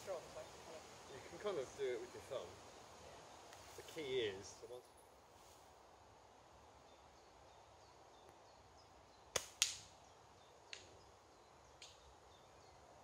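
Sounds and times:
slingshot band snapping: 0:09.3 - 0:09.9.

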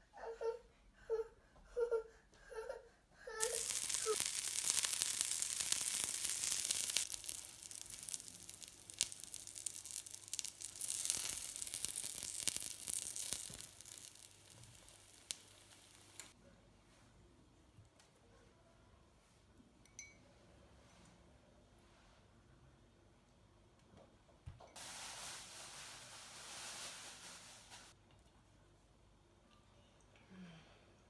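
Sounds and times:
child babbling: 0:00.2 - 0:04.2
pancakes sizzling in a pan: 0:03.4 - 0:16.4, 0:24.8 - 0:28.0.

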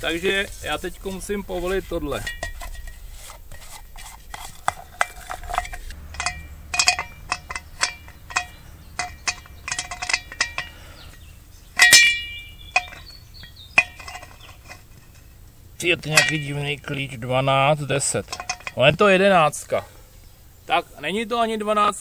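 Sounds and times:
spanner clinking on metal nut: 0:04.3 - 0:15.4, 0:16.0 - 0:16.7, 0:18.0 - 0:18.9.

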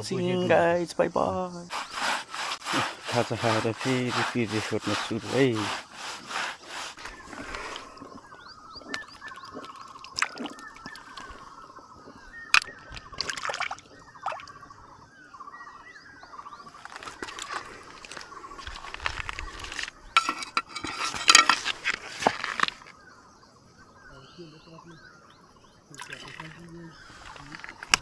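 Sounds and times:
birds chirping: 0:00.0 - 0:28.0
water sloshing in a stream: 0:01.7 - 0:15.0, 0:25.9 - 0:28.0
stones knocking: 0:16.8 - 0:22.9, 0:27.3 - 0:28.0.

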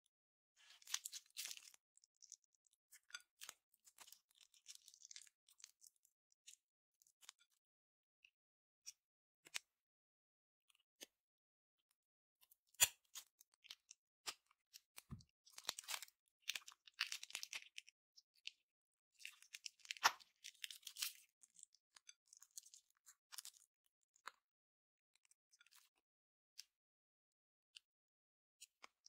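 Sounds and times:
slime crackling and crunching: 0:00.6 - 0:02.5, 0:03.2 - 0:05.9, 0:19.4 - 0:21.6.

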